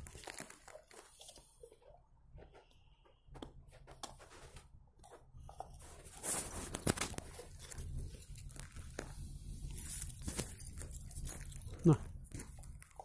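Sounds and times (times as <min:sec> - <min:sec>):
dog crunching a bone: 0:00.0 - 0:02.0, 0:05.0 - 0:13.0.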